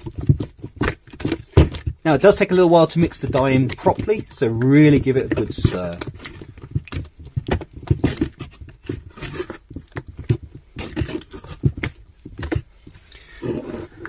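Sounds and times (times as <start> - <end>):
stick stirring wet cement paste: 0.0 - 14.0.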